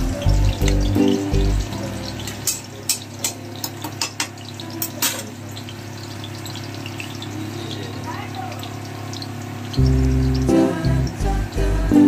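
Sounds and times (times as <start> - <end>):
seeds popping in hot oil: 0.0 - 11.9
oil sizzling: 0.0 - 12.0
low steady hum: 8.6 - 12.0.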